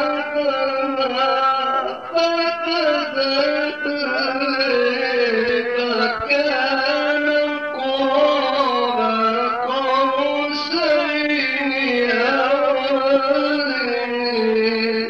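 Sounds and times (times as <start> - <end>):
man chanting melodically: 0.0 - 15.0.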